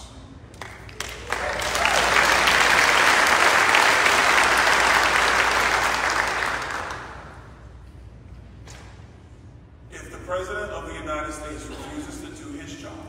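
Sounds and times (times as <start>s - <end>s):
audience applauding: 0.5s - 7.6s.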